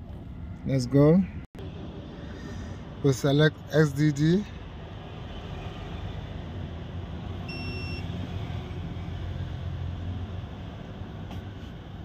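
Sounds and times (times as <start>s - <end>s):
short electronic beep: 7.5s - 8.0s.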